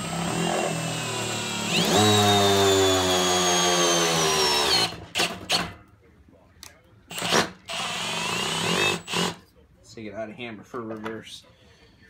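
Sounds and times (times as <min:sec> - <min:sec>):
hammer drill driving screw into wood: 0:00.0 - 0:05.8, 0:07.1 - 0:09.4.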